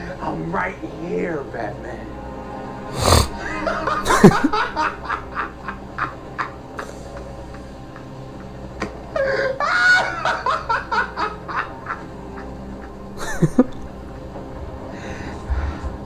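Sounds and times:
faint background music: 0:00.0 - 0:16.0
man cackling laugh: 0:03.4 - 0:13.9.

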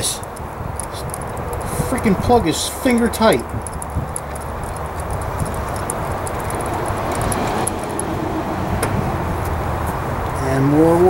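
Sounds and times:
road traffic noise: 0:00.0 - 0:11.0
metallic socket clicks: 0:00.2 - 0:01.6, 0:02.8 - 0:08.1.

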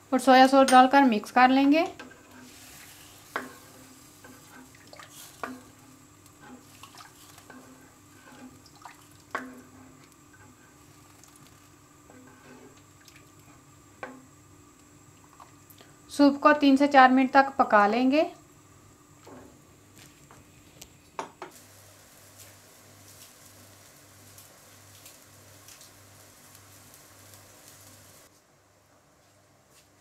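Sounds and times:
soup sloshing in a pan: 0:02.3 - 0:13.5.

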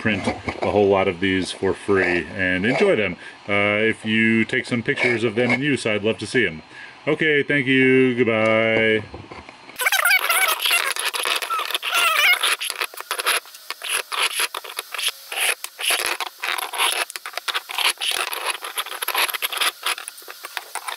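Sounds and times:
squeaky wavering chirps: 0:09.8 - 0:20.1
plastic threads scraping and rattling: 0:09.8 - 0:20.9.

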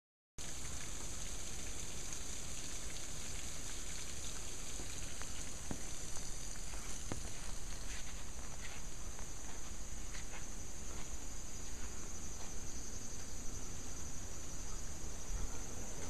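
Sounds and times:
water splashing down: 0:00.4 - 0:08.4
water drips: 0:00.4 - 0:16.0.

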